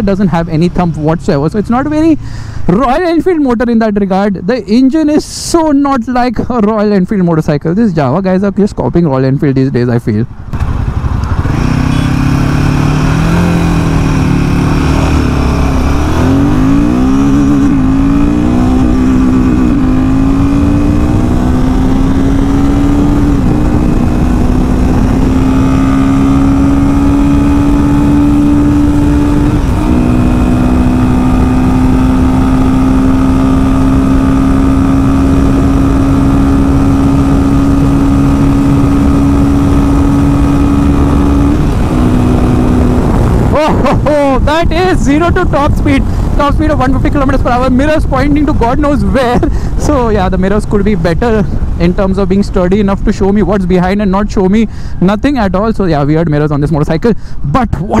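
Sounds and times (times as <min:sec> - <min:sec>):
motorcycle engine accelerating: 0:10.4 - 0:54.6, 0:57.7 - 0:58.0.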